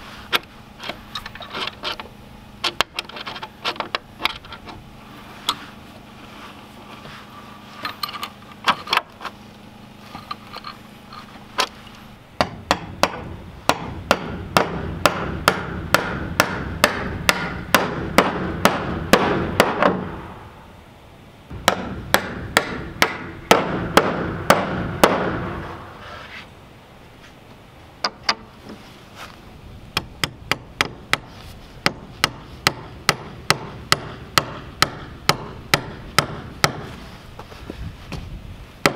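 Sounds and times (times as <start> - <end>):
hammer striking metal bolts: 12.4 - 20.3, 21.5 - 25.8, 30.0 - 36.9.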